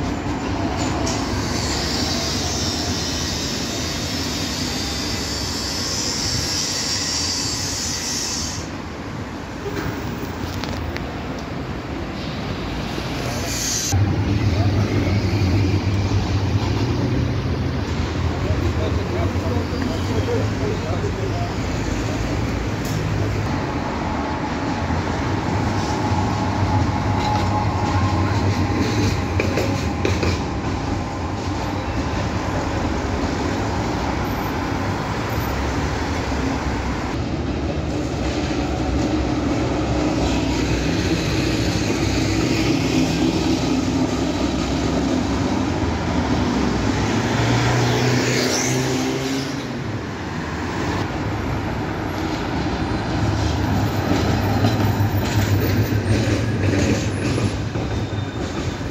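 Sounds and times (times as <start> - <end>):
passing road traffic: 0.0 - 58.9
tram wheels clattering on rails: 0.0 - 58.9
high-pitched squeal: 1.0 - 8.8.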